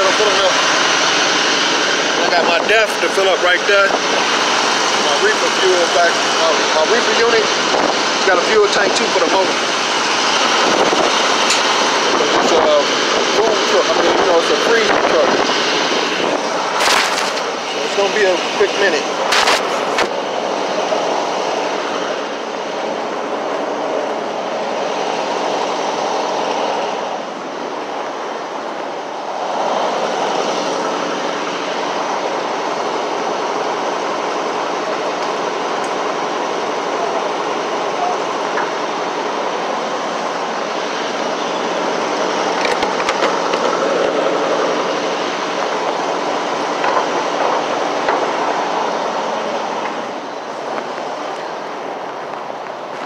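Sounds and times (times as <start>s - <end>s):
rushing noise: 0.0s - 53.0s.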